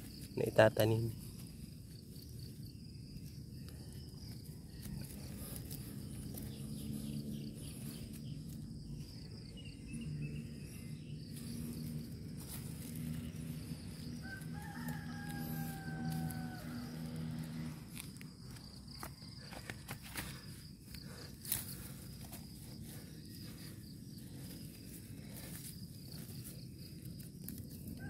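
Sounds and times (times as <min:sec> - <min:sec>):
insects buzzing: 0:00.0 - 0:28.0
low hum: 0:01.1 - 0:19.2
distant rooster crowing: 0:13.2 - 0:17.8.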